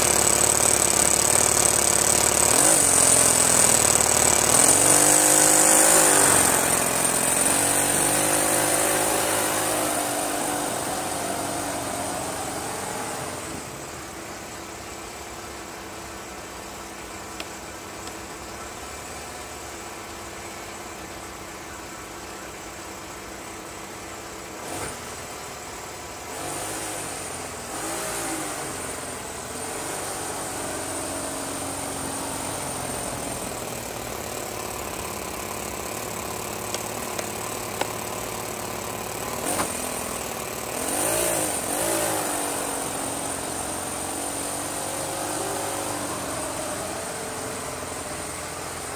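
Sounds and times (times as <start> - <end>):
small engine running and revving: 0.0 - 14.4, 24.6 - 25.3, 26.2 - 48.9.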